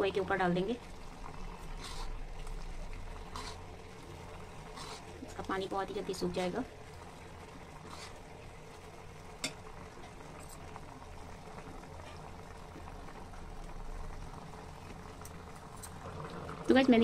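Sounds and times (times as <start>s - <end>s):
carrots bubbling in a pan: 0.0s - 17.0s.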